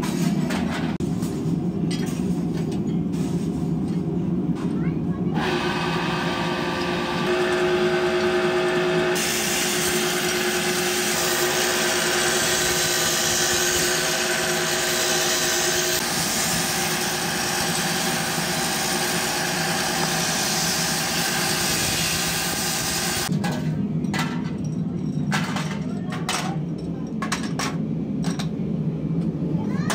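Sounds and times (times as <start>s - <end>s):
machine running with grinding hiss: 5.3s - 23.3s.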